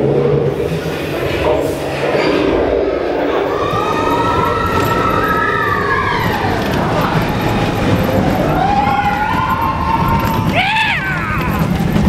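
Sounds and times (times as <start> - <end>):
roller coaster rumbling on track: 0.0 - 12.0
riders screaming: 3.4 - 12.0.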